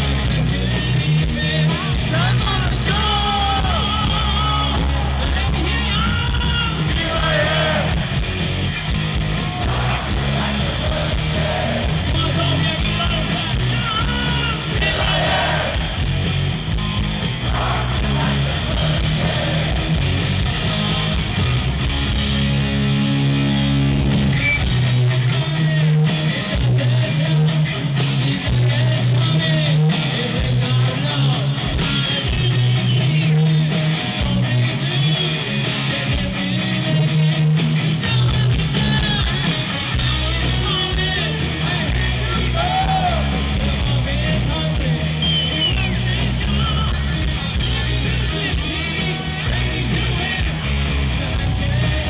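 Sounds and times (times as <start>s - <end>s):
live hard rock band: 0.0s - 52.0s.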